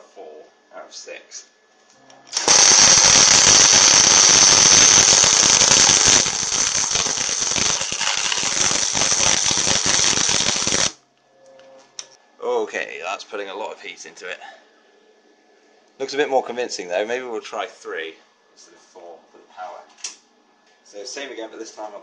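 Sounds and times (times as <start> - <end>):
welding arc crackling and spattering: 2.3 - 11.0.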